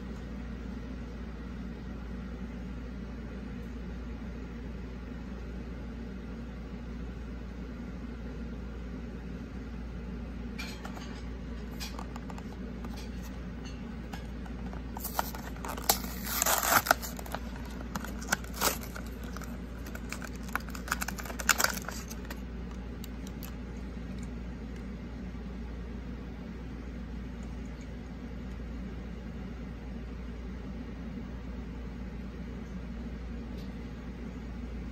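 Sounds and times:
steady low hum: 0:00.0 - 0:34.9
plastic blister pack tearing: 0:14.5 - 0:23.6.

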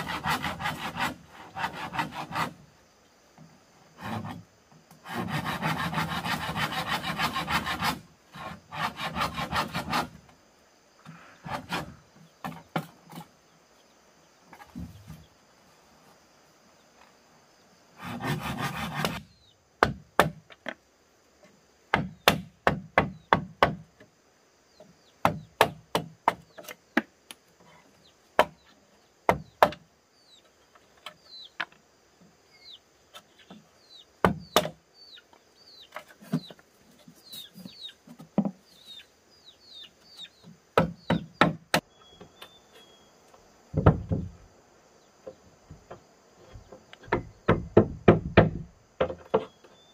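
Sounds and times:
bamboo being chopped: 0:19.8 - 0:20.7, 0:21.9 - 0:23.8, 0:25.2 - 0:27.1, 0:28.4 - 0:28.6, 0:34.2 - 0:34.8, 0:40.8 - 0:41.9.

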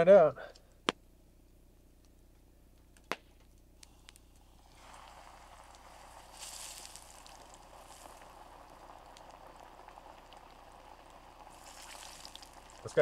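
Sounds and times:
oil popping: 0:03.8 - 0:13.0
chicken frying in hot oil: 0:04.4 - 0:13.0.

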